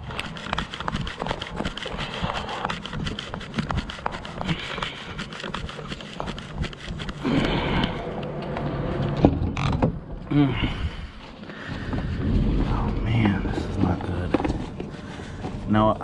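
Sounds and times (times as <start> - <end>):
hard breathing: 1.6 - 8.4, 10.3 - 13.8, 14.4 - 15.7.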